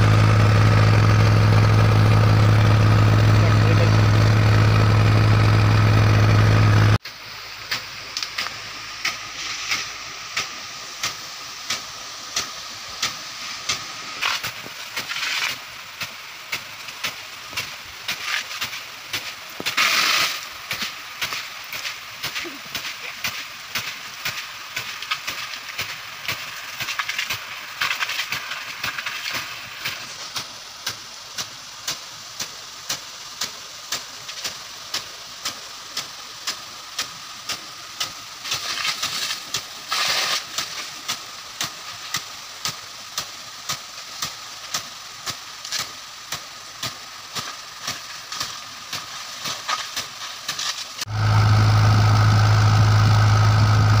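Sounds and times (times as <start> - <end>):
loud low hum: 0.0 - 7.0, 51.1 - 54.0
sprinkler spray hissing: 0.0 - 54.0.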